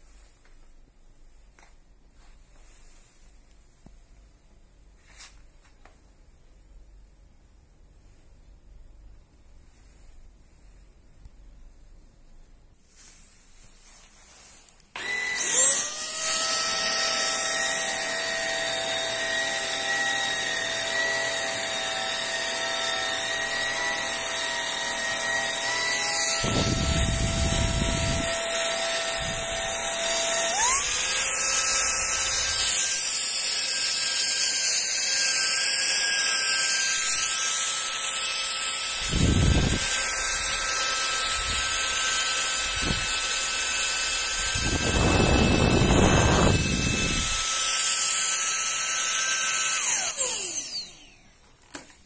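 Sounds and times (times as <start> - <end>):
handheld vacuum motor whining: 14.9 - 52.0.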